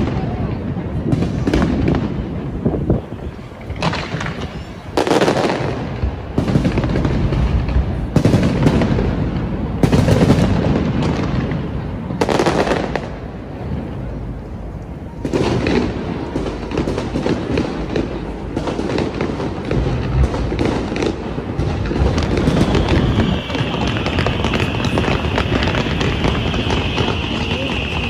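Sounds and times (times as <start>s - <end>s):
fireworks booming bursts: 0.0s - 28.0s
fireworks crackling: 0.0s - 28.0s.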